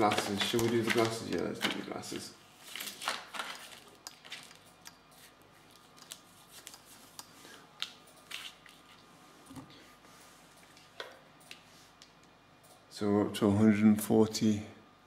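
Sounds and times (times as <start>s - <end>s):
paper rustling and crinkling: 0.0s - 4.6s, 5.2s - 7.1s.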